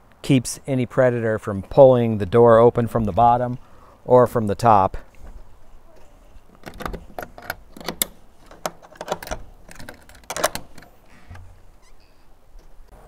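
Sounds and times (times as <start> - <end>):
metallic latch clicks: 6.5 - 12.9.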